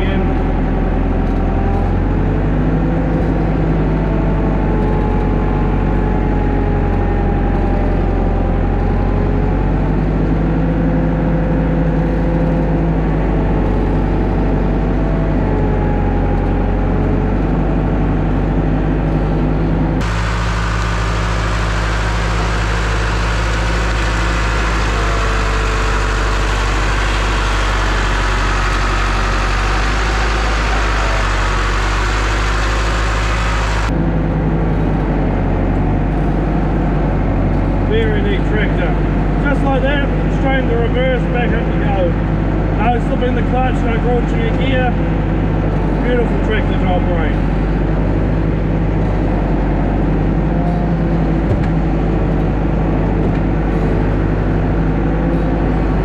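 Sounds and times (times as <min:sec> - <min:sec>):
tractor diesel engine running: 0:00.0 - 0:56.0
hissy engine noise: 0:19.9 - 0:34.0.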